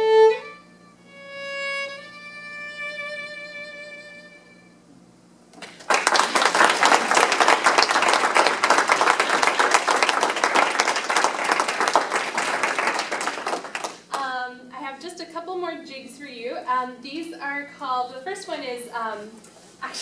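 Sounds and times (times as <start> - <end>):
people applauding: 5.6 - 14.2.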